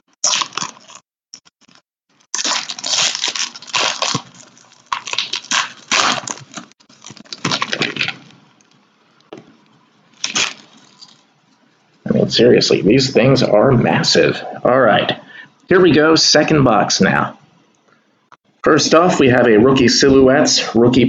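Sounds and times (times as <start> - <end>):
plastic packaging crinkling and tearing: 0.2 - 8.8, 10.1 - 11.3.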